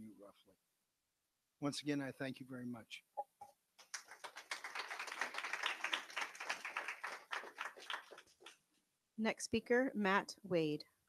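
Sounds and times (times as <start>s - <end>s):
audience applauding: 3.8s - 8.6s.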